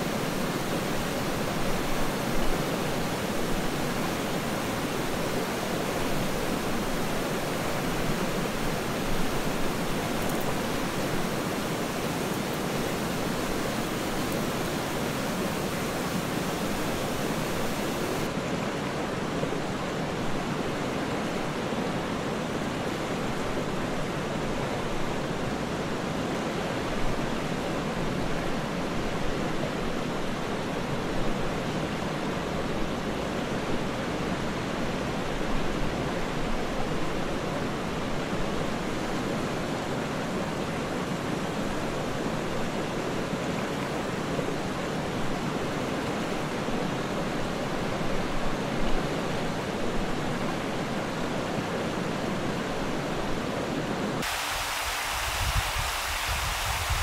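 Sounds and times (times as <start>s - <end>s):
water rushing over rocks: 0.0s - 19.0s, 37.8s - 57.0s.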